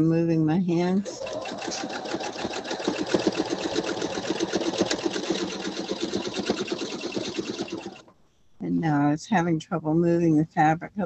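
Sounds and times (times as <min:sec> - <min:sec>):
sewing machine stitching: 0:00.8 - 0:08.1.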